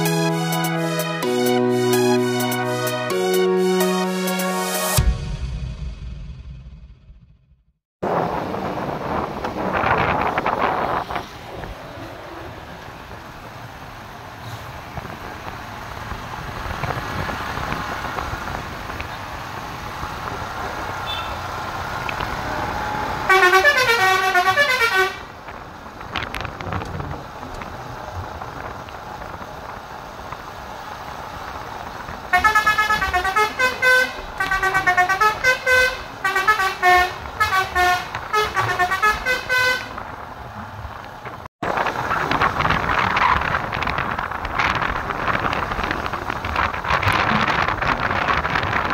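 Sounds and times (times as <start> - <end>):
musical air horn melodies: 0.0 - 5.4, 23.3 - 25.2, 32.3 - 39.9
bus engine approaching: 8.0 - 48.9.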